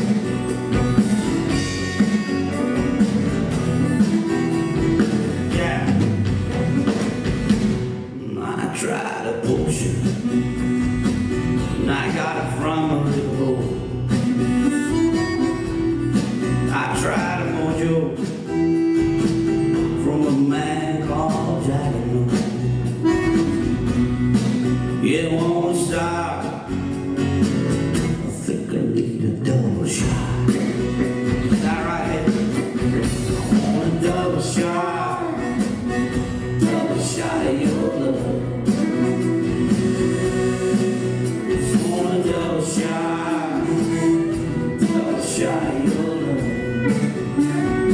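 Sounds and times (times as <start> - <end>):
accordion playing tune: 0.0 - 8.0, 10.2 - 11.8, 14.2 - 16.7, 18.4 - 20.0, 22.9 - 25.0, 34.9 - 37.4, 38.3 - 47.9
drums: 0.0 - 47.9
electric bass: 0.0 - 47.9
strummed acoustic guitar: 0.0 - 47.9
piano accordion: 22.9 - 24.9
fiddle: 38.2 - 47.9.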